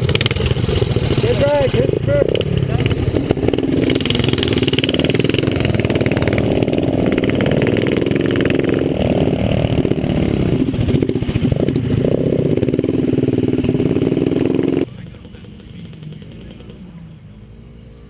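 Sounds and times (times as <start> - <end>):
mini-bike engine revving: 0.0 - 18.0.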